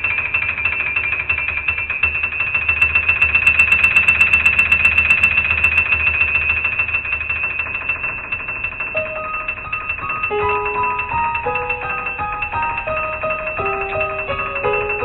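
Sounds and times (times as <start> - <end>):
pulsing bell-like electronic tone: 0.0 - 15.0
background music: 10.2 - 15.0.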